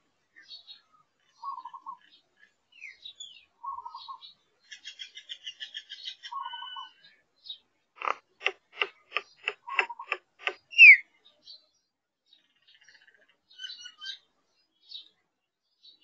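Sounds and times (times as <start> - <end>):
bird chattering trill: 8.0 - 11.0
sharp repeated bird notes: 8.0 - 11.0.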